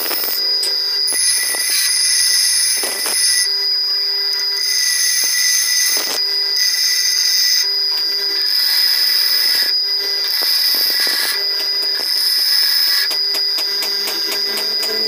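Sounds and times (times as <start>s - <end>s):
grinder motor humming: 0.0s - 15.0s
grinder wheel screeching on steel: 1.0s - 3.5s, 4.3s - 7.7s, 8.3s - 15.0s.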